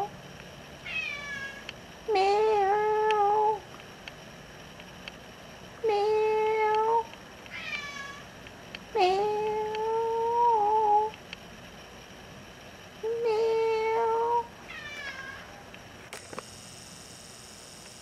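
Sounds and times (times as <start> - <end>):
cat meowing: 0.8 - 1.6, 7.5 - 8.2, 13.6 - 15.6.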